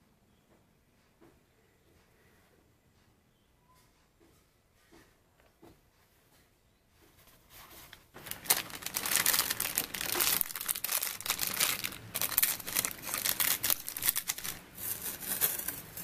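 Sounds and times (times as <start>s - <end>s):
plastic wrapping crinkling: 7.9s - 16.0s.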